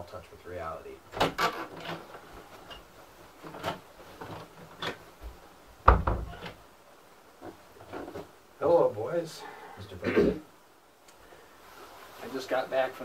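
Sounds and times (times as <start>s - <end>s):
door shutting with thump: 5.8s - 6.6s.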